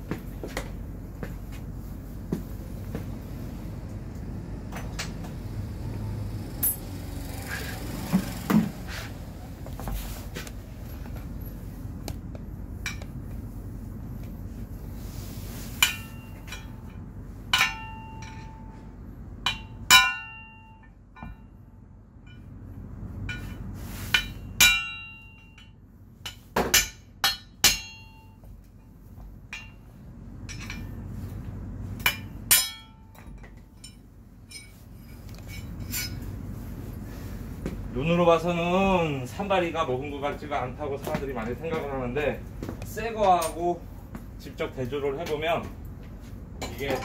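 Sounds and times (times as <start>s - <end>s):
hammer striking steel punch: 17.5s - 18.5s, 19.5s - 21.4s, 24.2s - 25.6s, 26.3s - 28.4s, 32.0s - 33.2s.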